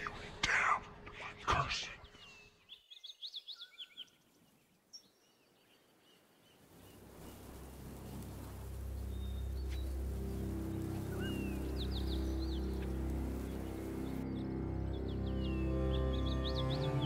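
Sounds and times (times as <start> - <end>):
songbirds chirping: 0.0 - 17.0
low musical drone: 7.5 - 17.0.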